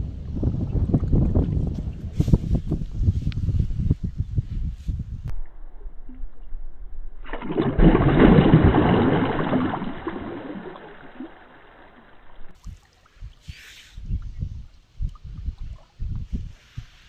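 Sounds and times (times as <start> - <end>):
fish splashing in water: 7.3 - 12.6.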